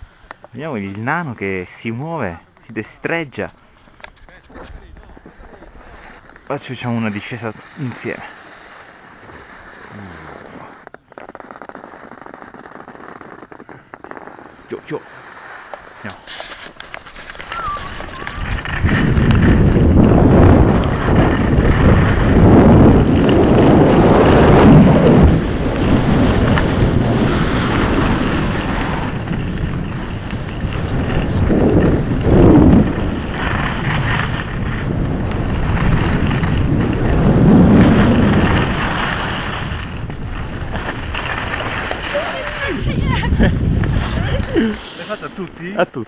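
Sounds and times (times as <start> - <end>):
wind buffeting microphone: 17.2 - 46.0.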